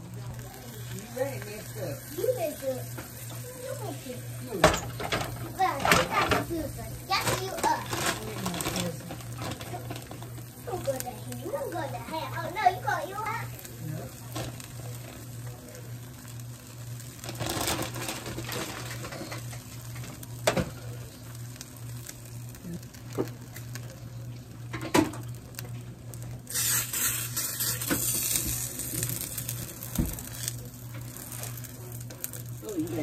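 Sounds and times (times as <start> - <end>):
food sizzling in pan: 0.0 - 33.0.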